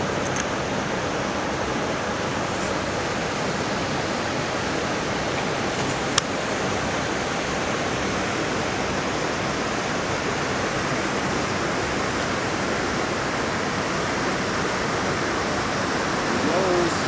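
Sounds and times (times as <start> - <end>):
stream water rushing: 0.0 - 17.0.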